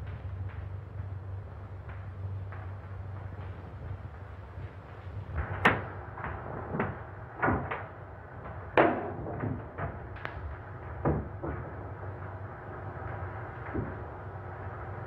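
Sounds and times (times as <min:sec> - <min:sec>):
steady low hum: 0:00.0 - 0:15.0
irregular knocks and thumps: 0:11.0 - 0:11.9.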